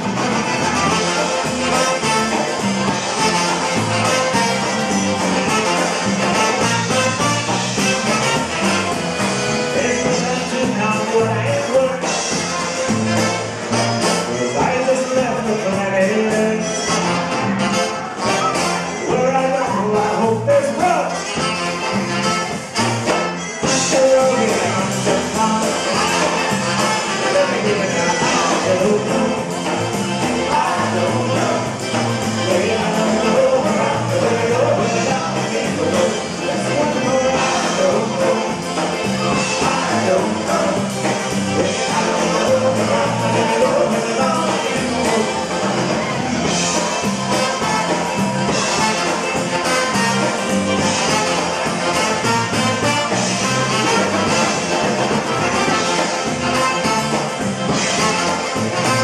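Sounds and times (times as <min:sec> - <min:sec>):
accordion: 0:00.0 - 0:59.0
polka band playing: 0:00.0 - 0:59.0
saxophone: 0:00.0 - 0:59.0
men singing into microphones: 0:09.7 - 0:12.2, 0:14.3 - 0:16.9, 0:19.0 - 0:21.1, 0:23.6 - 0:46.1.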